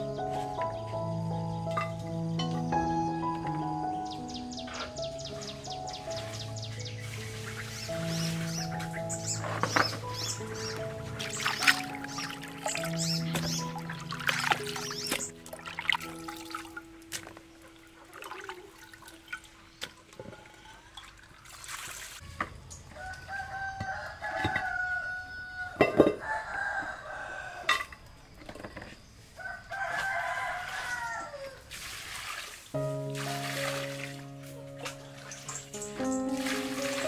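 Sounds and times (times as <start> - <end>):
water splashing and pouring: 5.3 - 22.4, 31.6 - 37.0
rooster crowing: 22.9 - 27.9, 29.4 - 31.7.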